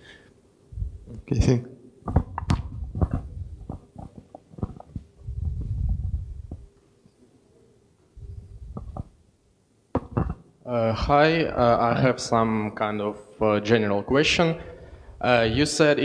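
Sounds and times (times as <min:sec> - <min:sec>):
microphone handling rumbles: 0:00.7 - 0:01.2, 0:02.1 - 0:06.7, 0:08.2 - 0:09.2
microphone taps and knocks: 0:02.0 - 0:06.7, 0:08.6 - 0:09.2, 0:09.9 - 0:10.4.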